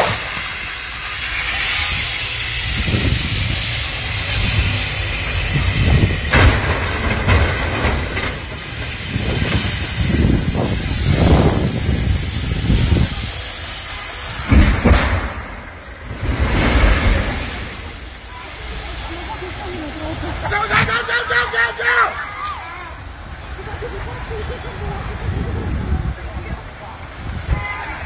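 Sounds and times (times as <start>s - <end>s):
strong wind on microphone: 1.7s - 13.6s, 23.0s - 28.0s.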